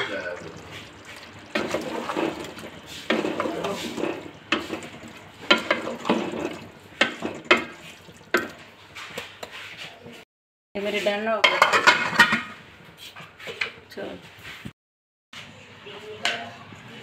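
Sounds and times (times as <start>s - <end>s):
spatula scraping in a pot: 0.0s - 10.2s
spatula clacking against pot: 0.1s - 8.6s.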